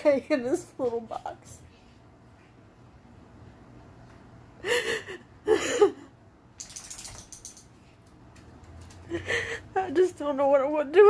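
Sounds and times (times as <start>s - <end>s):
woman sobbing: 4.6s - 6.2s, 9.1s - 10.1s.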